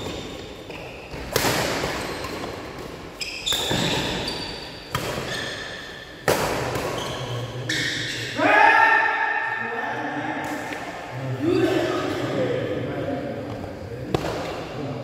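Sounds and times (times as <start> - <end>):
rackets hitting shuttlecock: 0.0 - 4.3, 4.9 - 7.4.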